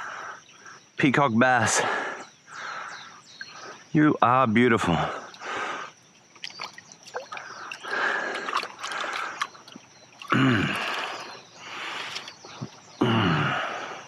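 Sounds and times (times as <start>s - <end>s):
water splashing and dripping: 6.3s - 12.9s.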